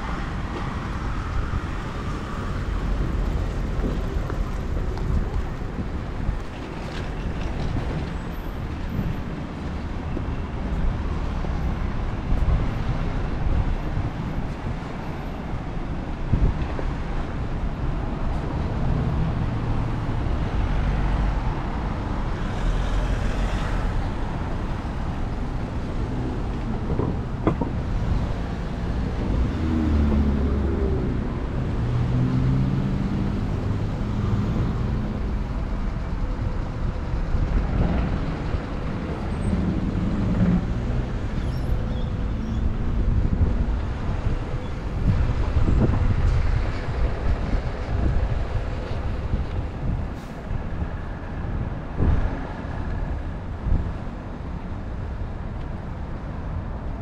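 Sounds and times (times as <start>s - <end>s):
cars and truck driving past: 16.3s - 55.2s.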